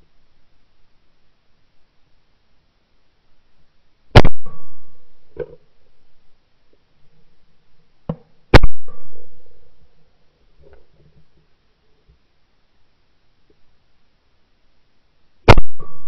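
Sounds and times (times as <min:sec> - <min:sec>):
shotgun shots: 0:04.2 - 0:04.8, 0:08.5 - 0:09.4, 0:15.5 - 0:16.0.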